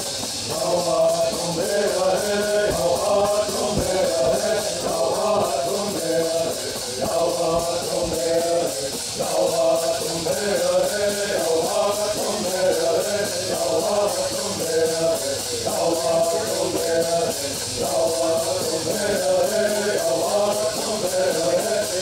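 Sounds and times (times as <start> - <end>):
men singing in unison: 0.0 - 22.0.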